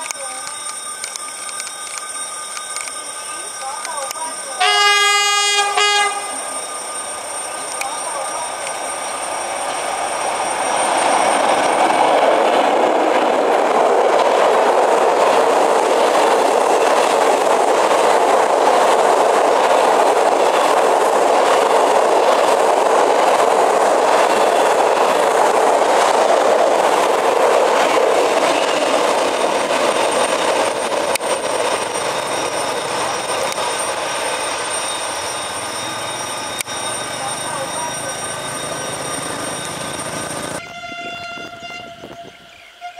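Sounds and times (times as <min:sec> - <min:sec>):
train wheels rolling on rails: 0:00.0 - 0:42.8.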